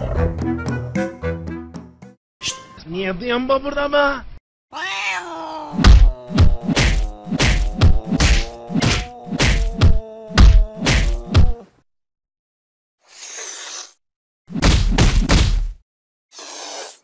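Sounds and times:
loud punch-style whacks: 5.8 - 11.5, 14.5 - 15.8.

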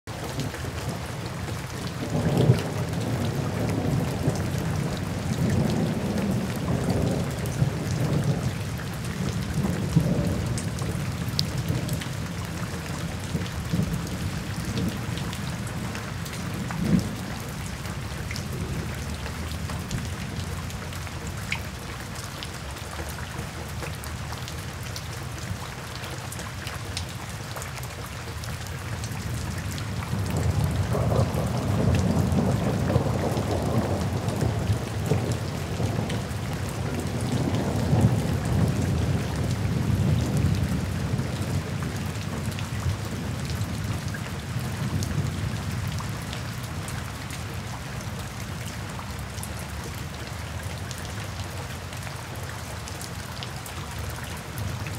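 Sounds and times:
rain splashing on pavement: 0.1 - 54.9.

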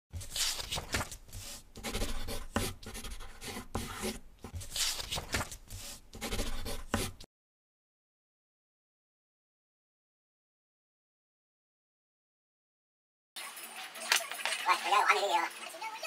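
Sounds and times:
pen scratching on paper: 0.2 - 7.3.

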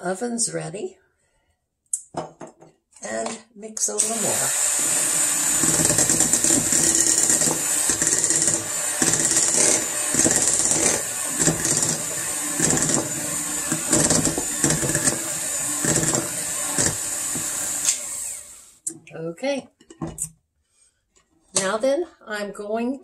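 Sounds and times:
electric hand mixer running: 4.0 - 18.8
mixer beaters knocking: 4.1 - 18.4.

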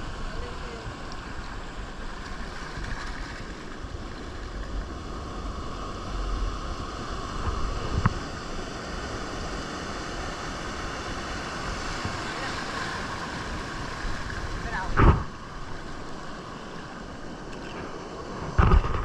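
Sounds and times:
wind rumble on microphone: 0.0 - 19.0
water sloshing and lapping: 0.3 - 5.0, 11.1 - 19.0.

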